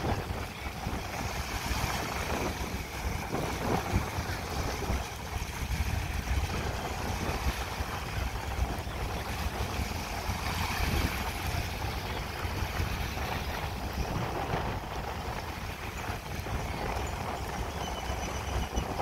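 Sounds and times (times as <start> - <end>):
distant motorboats: 0.0 - 19.0
small waves lapping: 0.0 - 19.0
wind buffeting microphone: 0.0 - 19.0.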